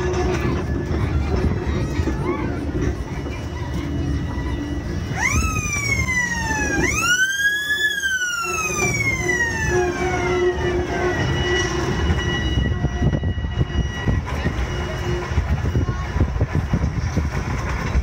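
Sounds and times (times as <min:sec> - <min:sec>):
railway car rumbling: 0:00.0 - 0:18.0
siren wailing: 0:05.0 - 0:14.9.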